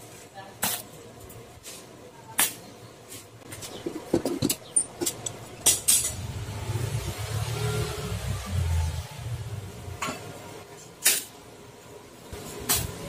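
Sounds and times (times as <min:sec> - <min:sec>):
metallic knocks and clinks: 0:03.8 - 0:06.2.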